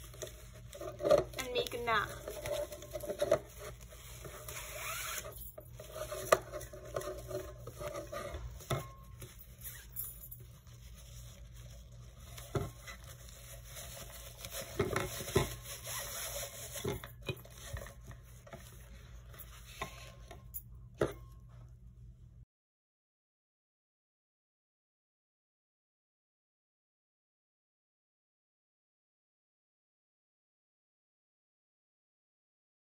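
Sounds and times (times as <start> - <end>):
fabric ribbon rustling: 0.0 - 20.2.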